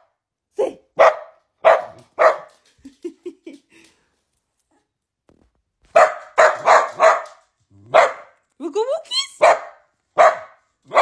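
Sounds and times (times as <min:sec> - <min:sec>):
dog barking: 0:01.0 - 0:02.6, 0:05.9 - 0:08.4, 0:09.4 - 0:11.0.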